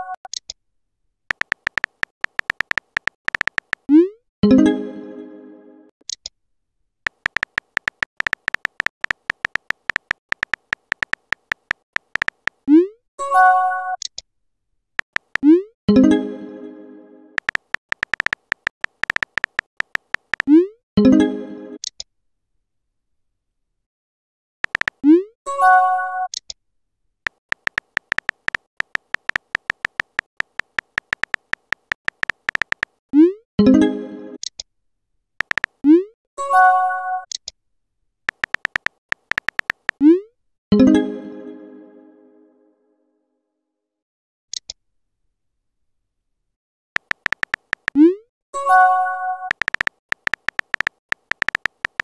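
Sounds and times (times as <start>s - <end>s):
phone keyboard clicks: 1.3s - 3.9s, 7.1s - 12.6s, 15.0s - 15.5s, 17.4s - 20.5s, 24.6s - 25.0s, 27.3s - 33.0s, 35.4s - 35.8s, 38.3s - 40.0s, 47.0s - 48.0s, 49.5s - 52.0s.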